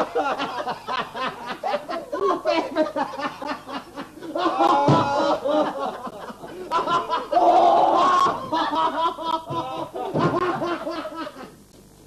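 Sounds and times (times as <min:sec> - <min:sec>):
men laughing loudly: 0:00.0 - 0:11.6
men yelling: 0:04.4 - 0:05.6, 0:06.9 - 0:08.4.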